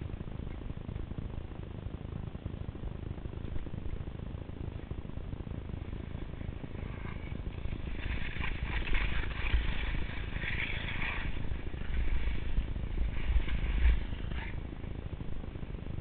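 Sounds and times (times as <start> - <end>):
wind noise on microphone: 0.0 - 16.0
skis hissing through snow: 6.0 - 15.0.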